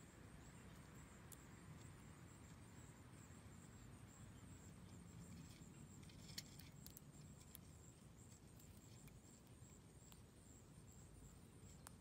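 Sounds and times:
soft ticks: 11.6s - 12.0s.

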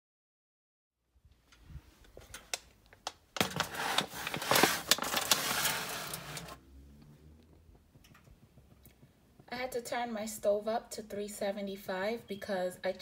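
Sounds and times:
aluminium foil crinkling: 2.3s - 6.6s.

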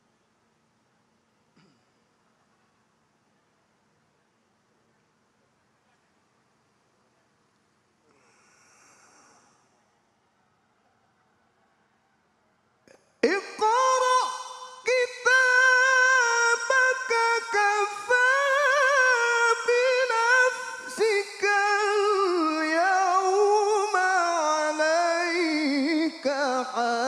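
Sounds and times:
man chanting melodic recitation: 13.2s - 27.0s.

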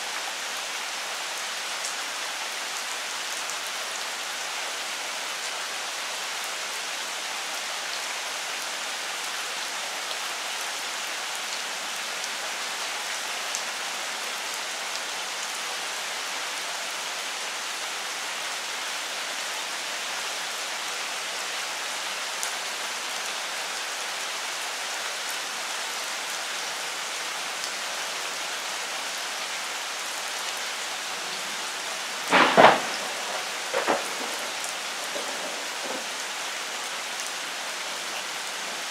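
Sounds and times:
heavy rain on leaves: 0.0s - 38.9s.

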